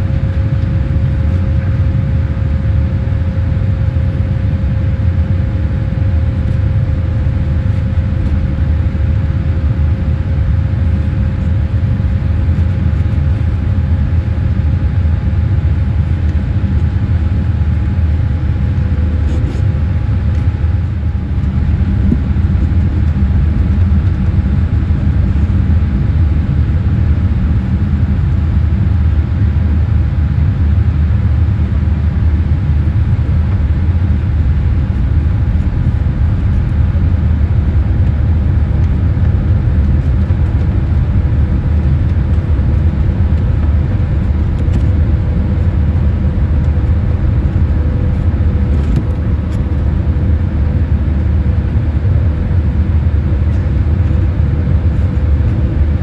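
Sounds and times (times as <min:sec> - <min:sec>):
airliner cabin rumble: 0:00.0 - 0:56.0
faint hum tones: 0:00.0 - 0:56.0.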